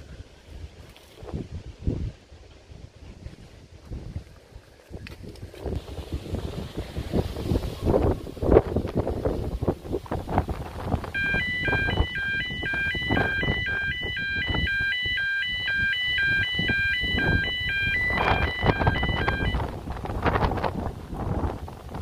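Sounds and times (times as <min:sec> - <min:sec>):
wind buffeting microphone: 0:00.0 - 0:22.0
two-tone electronic alarm: 0:11.1 - 0:19.7.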